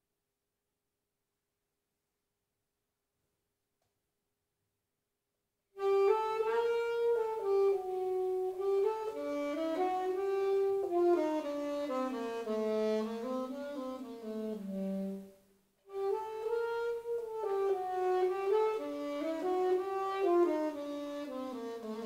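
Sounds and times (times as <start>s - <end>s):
solo saxophone melody: 5.8s - 22.0s.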